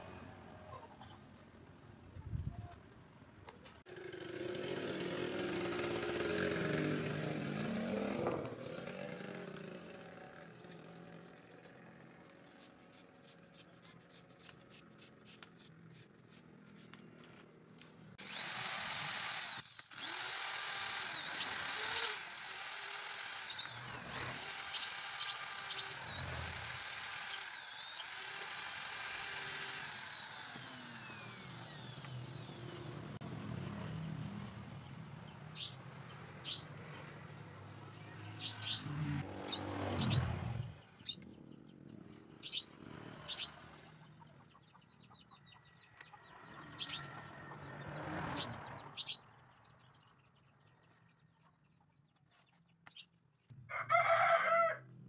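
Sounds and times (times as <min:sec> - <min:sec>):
electric drill whining: 0:18.2 - 0:33.2
birds chirping: 0:33.9 - 0:55.0.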